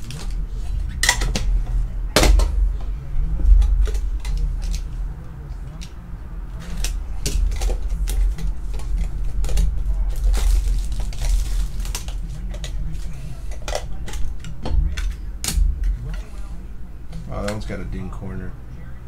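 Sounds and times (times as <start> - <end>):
plastic wrap crinkling: 6.6 - 14.2.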